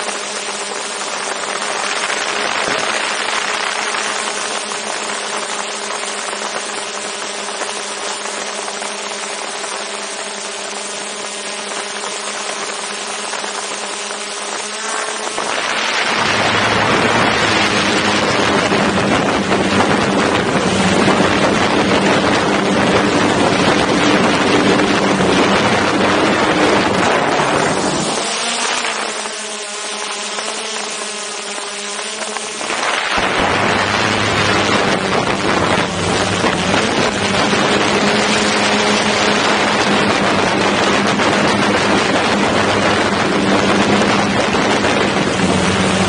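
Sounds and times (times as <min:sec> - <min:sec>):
drone propellers humming: 0:00.0 - 0:46.0
wind noise rushing: 0:12.4 - 0:29.2, 0:32.2 - 0:46.0.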